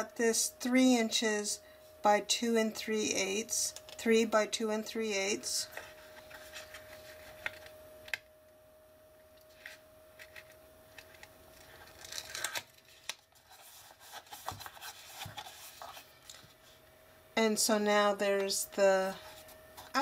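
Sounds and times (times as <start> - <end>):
paper rustling and rubbing: 5.7 - 7.7, 11.5 - 16.8, 19.1 - 20.0.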